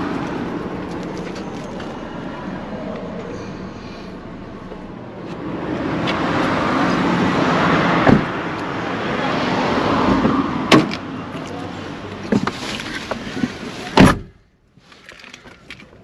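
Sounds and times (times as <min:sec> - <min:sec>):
cars passing: 0:00.0 - 0:14.2
car door shutting: 0:08.0 - 0:08.4, 0:12.3 - 0:14.4.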